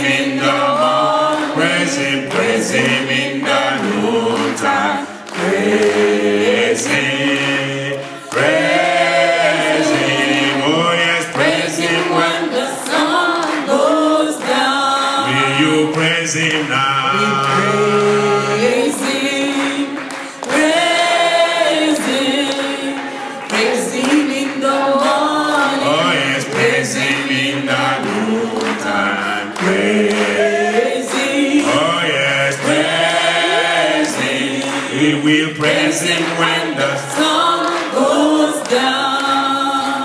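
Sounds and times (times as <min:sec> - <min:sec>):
congregation singing a hymn: 0:00.0 - 0:40.0.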